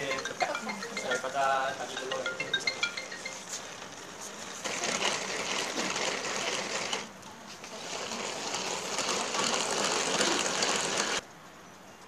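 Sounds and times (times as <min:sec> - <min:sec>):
hand-cranked mixer whirring: 0:02.0 - 0:11.2.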